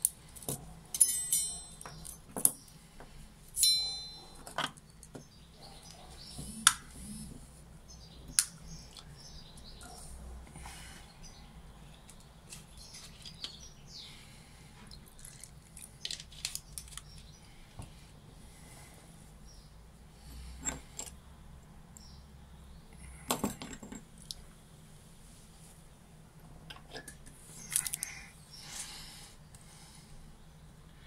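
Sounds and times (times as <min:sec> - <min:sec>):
small metal parts clicking: 0:00.0 - 0:02.6.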